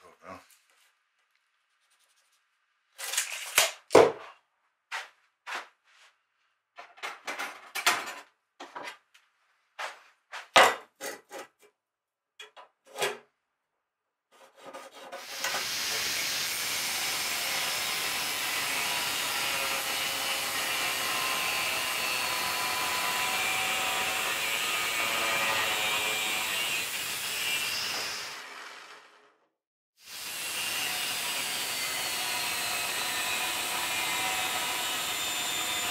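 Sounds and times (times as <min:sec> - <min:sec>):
angle grinder cutting steel: 0:15.2 - 0:29.2, 0:30.1 - 0:35.9.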